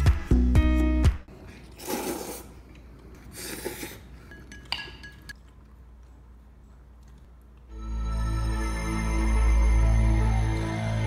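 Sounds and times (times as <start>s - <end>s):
noodles slurped: 1.5s - 4.2s
chopsticks clinking on dishes: 4.2s - 5.4s.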